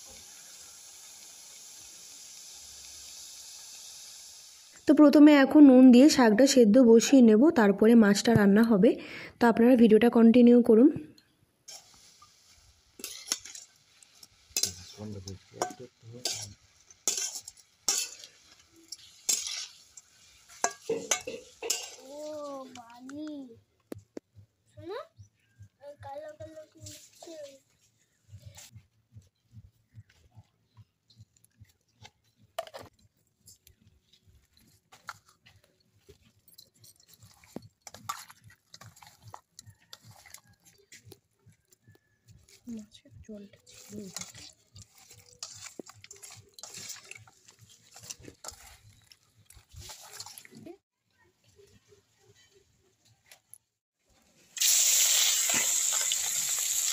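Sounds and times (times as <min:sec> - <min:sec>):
spatula scraping metal pan: 0:13.0 - 0:13.7, 0:15.6 - 0:22.0, 0:43.7 - 0:49.0
wet squelching of hands mixing: 0:37.0 - 0:42.7, 0:43.5 - 0:50.8.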